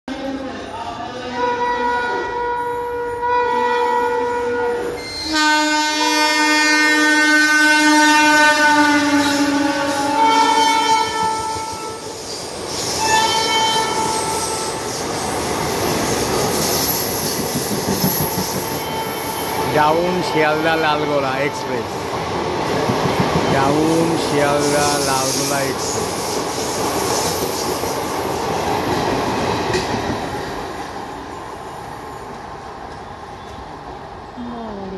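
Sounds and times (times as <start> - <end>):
train horn blast: 1.2 - 12.1, 13.0 - 14.8
train wheels clattering on rails: 9.9 - 19.7, 22.0 - 31.3.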